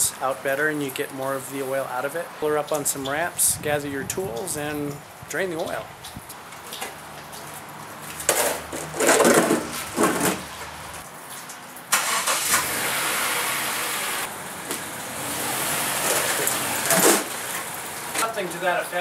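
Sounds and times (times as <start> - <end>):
plastic ramps knocking: 8.3 - 10.5
car engine starting and running: 11.9 - 18.3.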